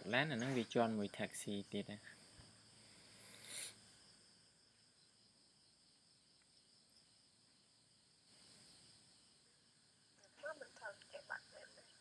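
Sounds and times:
faint recording hiss: 0:00.0 - 0:12.0
short breathy noise: 0:02.1 - 0:03.9.

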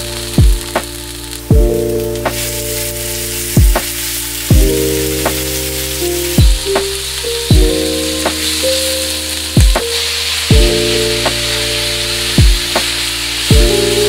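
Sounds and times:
background music with chords: 0:00.0 - 0:14.0
meat sizzling in a frying pan: 0:00.0 - 0:14.0
deep kick drum: 0:00.4 - 0:00.9, 0:01.5 - 0:01.9, 0:03.6 - 0:03.9, 0:04.5 - 0:04.8, 0:06.4 - 0:07.9, 0:09.6 - 0:09.9, 0:10.5 - 0:11.4, 0:12.4 - 0:12.9, 0:13.5 - 0:13.8.

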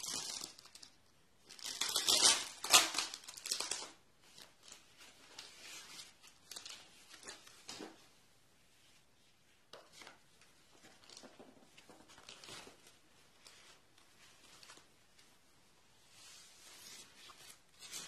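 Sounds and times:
foam packing sheets crinkling: 0:00.0 - 0:08.0.

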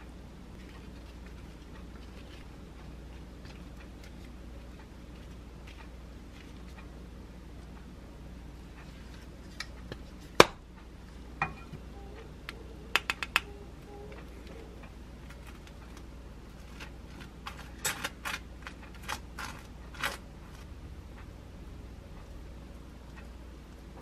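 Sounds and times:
metal spoon scraping bread: 0:16.5 - 0:20.6.

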